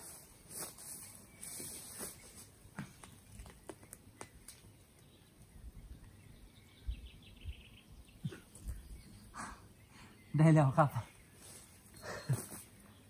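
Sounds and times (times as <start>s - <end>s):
twigs and leaves crackling: 0.0s - 5.5s
bird chirping: 0.8s - 13.0s.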